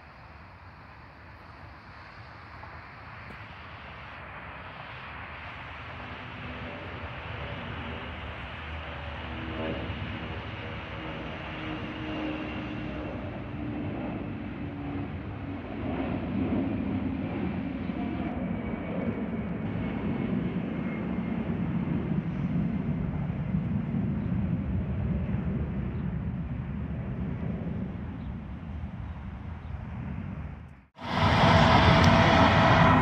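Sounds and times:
jet airliner engine noise: 0:00.0 - 0:33.0
high whine falling in pitch: 0:31.0 - 0:33.0.

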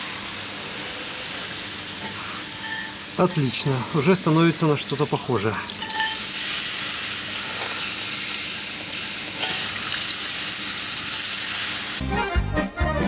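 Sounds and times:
water sizzling on hot steel: 0:00.0 - 0:12.0
accordion music: 0:12.0 - 0:13.0.

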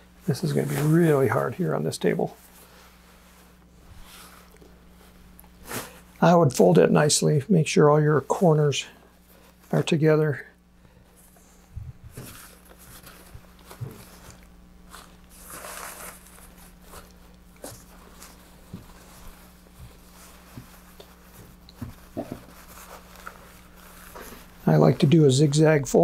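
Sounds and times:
steady low hum: 0:00.0 - 0:26.0
fabric rustling and swishing: 0:00.4 - 0:01.4, 0:02.3 - 0:06.1, 0:11.2 - 0:25.4.

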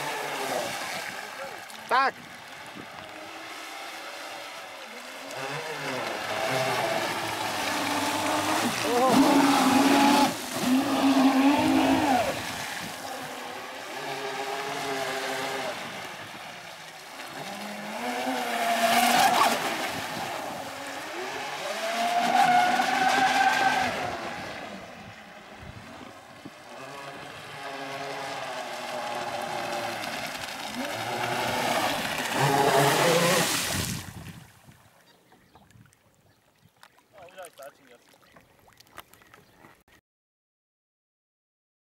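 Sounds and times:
electric motors whining: 0:02.9 - 0:12.4, 0:17.3 - 0:33.5.

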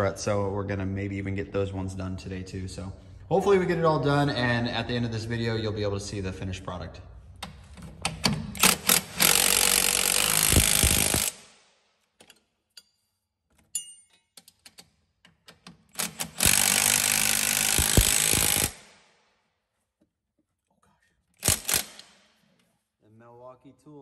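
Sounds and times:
impact wrench hammering: 0:07.5 - 0:11.6, 0:14.2 - 0:19.0, 0:21.4 - 0:22.4.

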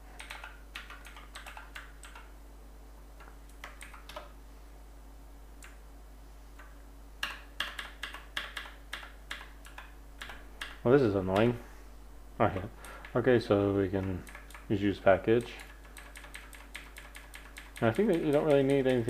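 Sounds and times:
computer keyboard keystrokes: 0:00.2 - 0:02.3, 0:03.2 - 0:04.3, 0:05.6 - 0:05.8, 0:06.6 - 0:10.8, 0:14.0 - 0:14.7, 0:15.4 - 0:19.0.

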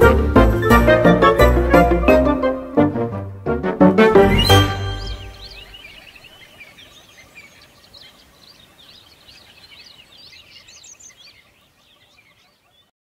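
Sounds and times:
songbirds chirping and singing: 0:04.1 - 0:12.9.

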